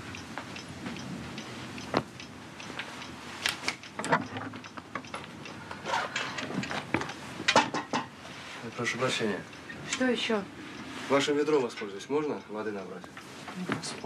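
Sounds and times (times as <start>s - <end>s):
clothing rustling and clicks: 0.4s - 7.7s.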